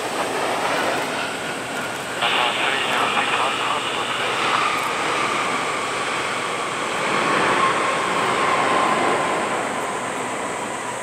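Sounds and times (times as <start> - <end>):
jet engines whining: 0.0 - 11.0.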